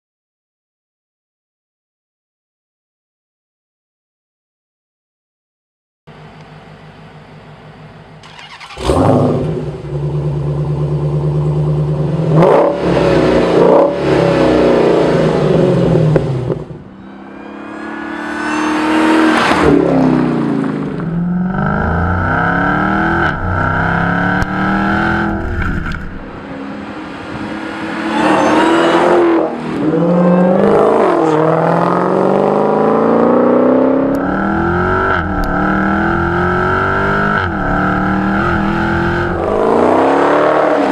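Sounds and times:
car engine idling with throttle blips: 6.1s - 31.7s
car accelerating through gears: 8.2s - 40.9s.

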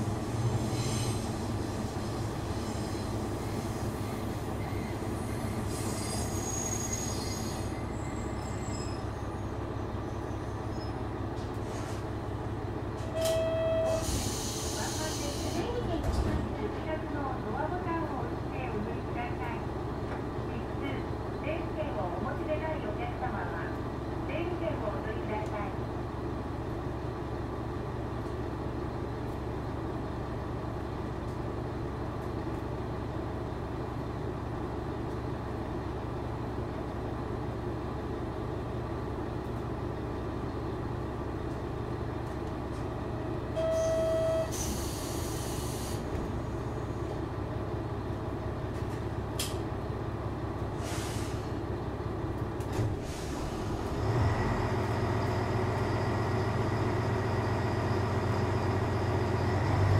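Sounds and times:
diesel railcar engine idling: 0.0s - 59.9s
click: 13.0s - 13.4s, 28.2s - 28.4s, 49.4s - 49.6s
short beep: 13.1s - 14.0s, 43.6s - 44.5s
hiss of air: 14.0s - 15.6s, 44.6s - 46.0s, 50.8s - 51.5s.

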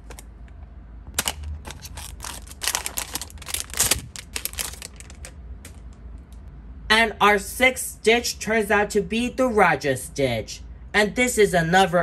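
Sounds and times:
foil bag crinkling: 1.2s - 5.4s.

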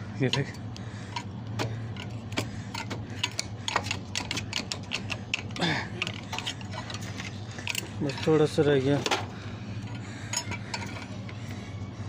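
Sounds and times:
metal tool scraping pipe cap: 2.0s - 8.5s.

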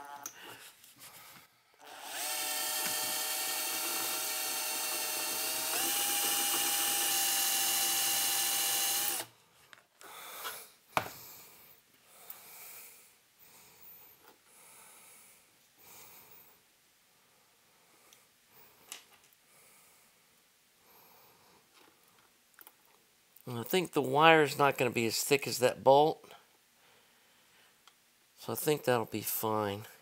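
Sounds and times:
cordless drill whining: 1.8s - 9.3s.

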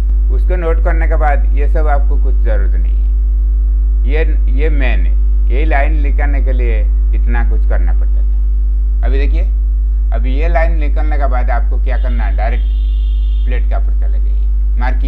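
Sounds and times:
electrical mains hum: 0.0s - 15.0s
man talking: 0.3s - 3.0s, 4.0s - 8.4s, 9.0s - 9.5s, 10.1s - 12.7s, 13.5s - 15.0s.

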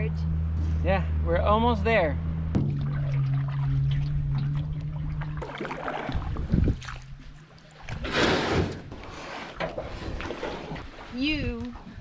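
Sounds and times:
low steady hum: 0.0s - 8.0s
water against aluminum canoe: 2.6s - 12.0s.

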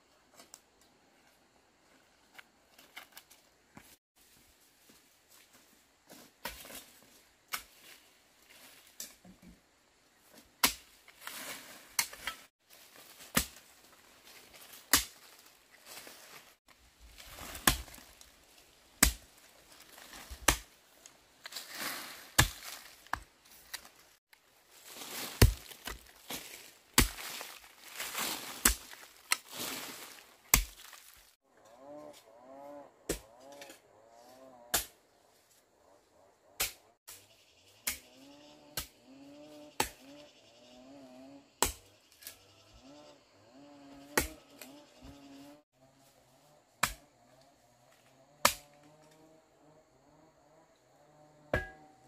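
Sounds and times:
hand tool chopping: 13.2s - 13.7s, 14.5s - 15.4s, 20.2s - 20.7s, 21.4s - 23.9s, 25.2s - 31.1s, 33.0s - 33.8s, 44.1s - 44.6s, 46.8s - 47.0s, 51.5s - 52.0s.

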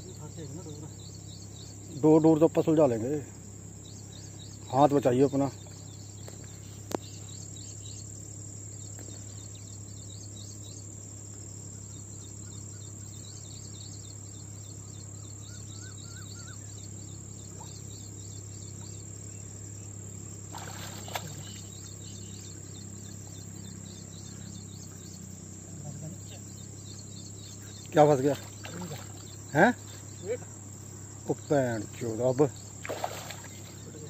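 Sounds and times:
continuous high buzz: 0.0s - 34.0s
insects chirping: 0.0s - 34.0s
bird warbling call: 14.8s - 16.8s, 20.6s - 25.2s.

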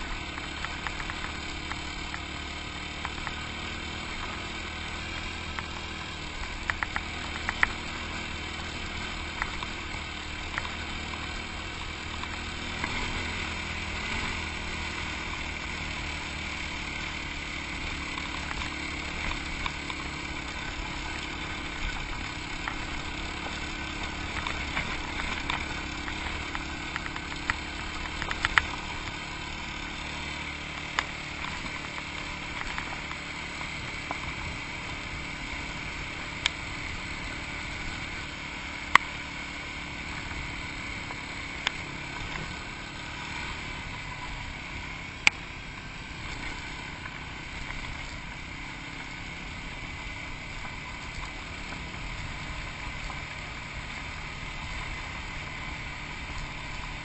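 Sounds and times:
motorcycle engine running: 0.0s - 57.0s
sharp ticks and knocks: 0.2s - 4.4s, 5.5s - 8.5s, 17.9s - 34.5s.

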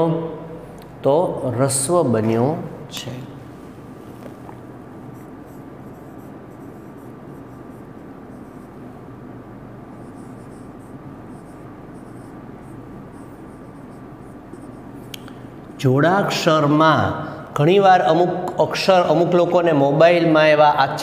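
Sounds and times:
marker writing on whiteboard: 4.2s - 8.9s, 9.9s - 15.2s.

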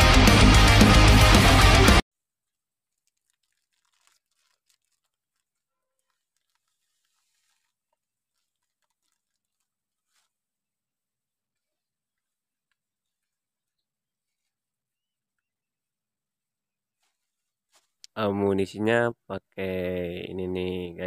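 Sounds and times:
loud rock music: 0.0s - 2.0s
plastic bag crinkling: 2.3s - 10.6s.

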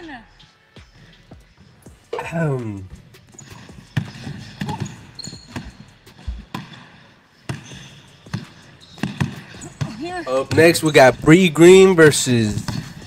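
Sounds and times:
basketball bouncing on hardwood: 3.7s - 6.8s, 7.5s - 10.9s, 12.5s - 13.0s.

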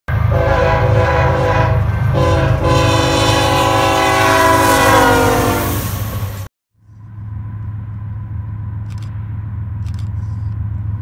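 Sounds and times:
locomotive air horn: 0.2s - 6.0s.

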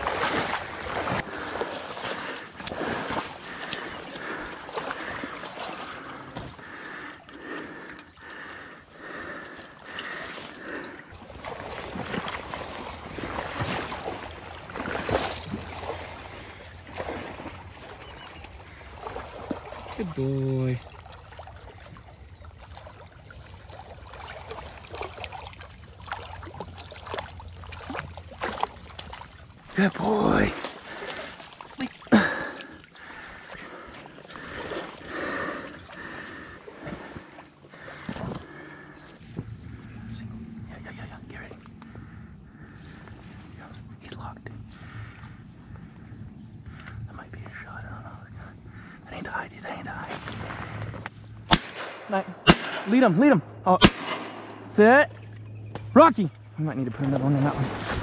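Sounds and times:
dog swimming and splashing: 0.0s - 6.6s, 11.2s - 32.7s, 57.0s - 58.0s
water sloshing from wading: 0.0s - 51.6s, 55.1s - 58.0s.

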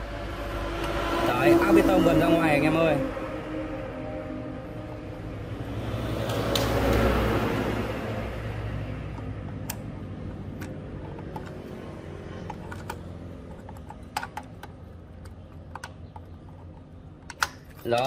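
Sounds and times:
low hum: 0.0s - 14.2s.

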